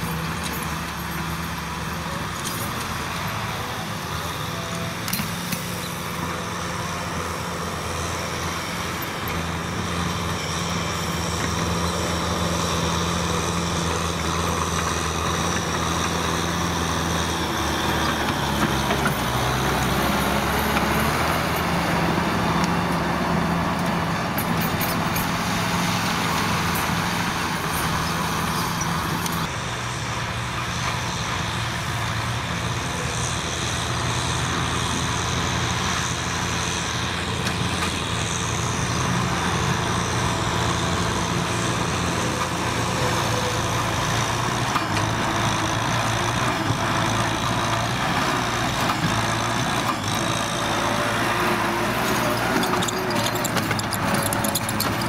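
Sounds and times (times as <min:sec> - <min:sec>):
tractor diesel engine running: 0:00.0 - 0:55.0
rotary tiller churning soil: 0:38.7 - 0:55.0.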